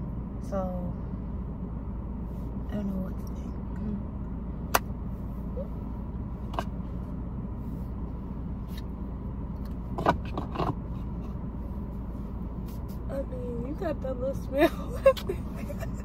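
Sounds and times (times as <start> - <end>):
low hum inside car: 0.0 - 16.0.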